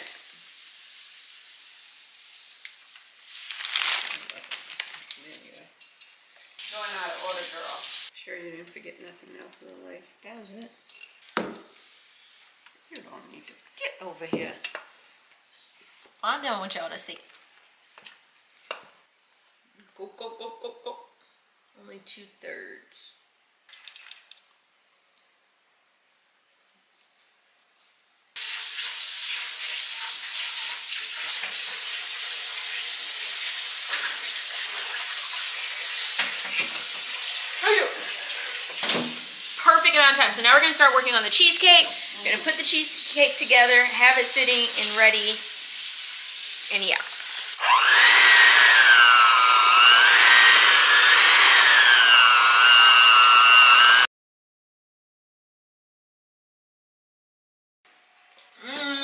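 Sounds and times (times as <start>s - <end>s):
electric hand mixer whining: 47.5s - 54.1s.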